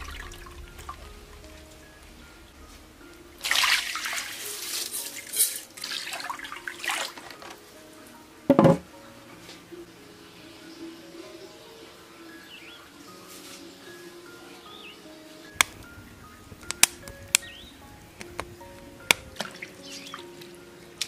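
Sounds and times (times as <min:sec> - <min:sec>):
rice and water pouring into wok: 0:03.2 - 0:07.6
wooden lid knock: 0:08.5 - 0:08.9.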